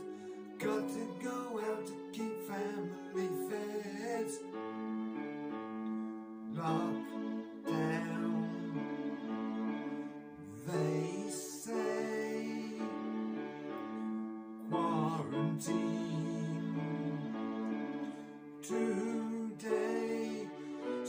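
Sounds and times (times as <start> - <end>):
person singing: 0.0 - 4.9, 6.5 - 9.7, 10.4 - 13.6, 14.6 - 21.0
chordal backing music: 0.0 - 21.0.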